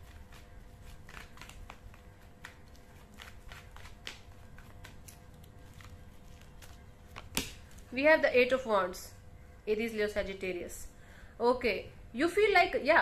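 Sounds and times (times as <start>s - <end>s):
cards being shuffled: 0.0s - 7.9s.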